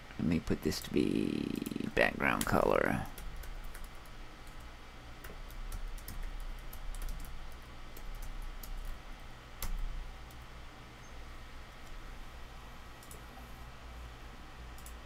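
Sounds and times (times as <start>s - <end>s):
computer keyboard typing: 0.8s - 9.0s, 9.6s - 10.5s, 13.0s - 13.2s, 14.7s - 15.0s.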